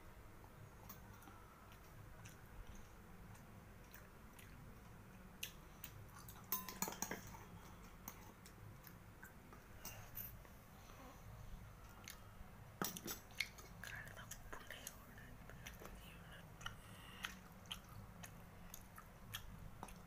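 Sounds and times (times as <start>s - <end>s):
faint chewing: 0.4s - 20.0s
metal spoon clinking in steel bowl: 6.5s - 7.4s.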